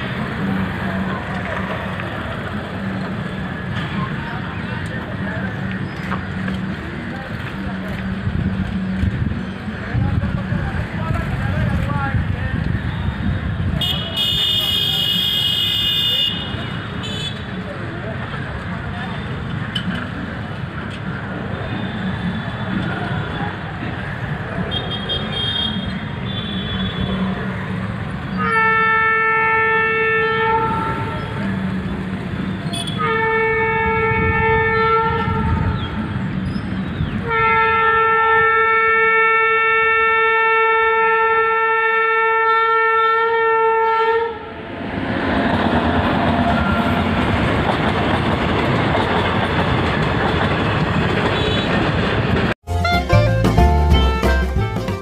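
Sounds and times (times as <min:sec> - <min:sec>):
train wheels on rails: 0:00.0 - 0:13.8, 0:44.4 - 0:52.6
train horn blasts: 0:28.3 - 0:31.4, 0:32.7 - 0:35.8, 0:37.2 - 0:44.5.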